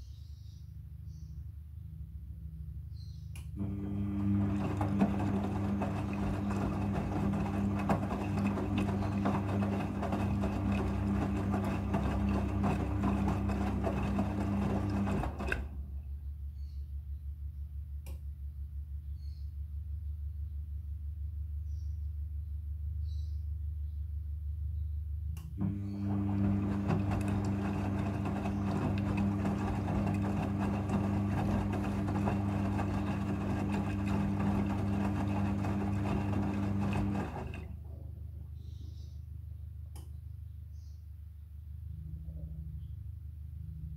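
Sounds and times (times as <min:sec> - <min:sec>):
wet laundry tumbling: 0:03.6 - 0:16.0, 0:25.6 - 0:37.9
washing machine drum motor humming: 0:03.6 - 0:16.1, 0:25.5 - 0:38.0
water sloshing: 0:04.2 - 0:15.9, 0:26.0 - 0:37.8.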